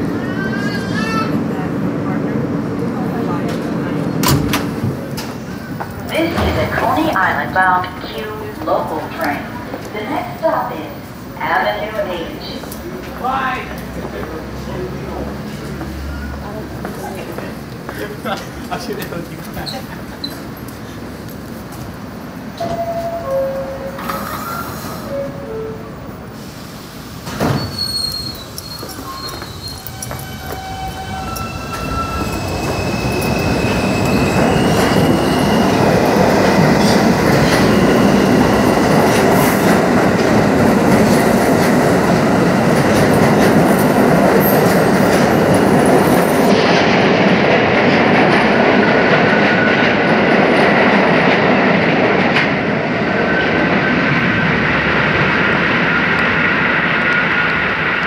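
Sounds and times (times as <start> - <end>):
train wheels on rail: 0.0 - 58.0
high wheel squeal: 27.4 - 35.8.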